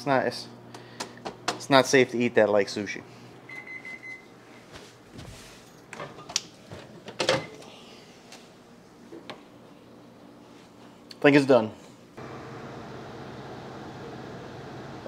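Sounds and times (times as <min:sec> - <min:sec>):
microwave oven beeping: 0:03.4 - 0:04.7, 0:07.2 - 0:07.6, 0:12.2 - 0:15.0.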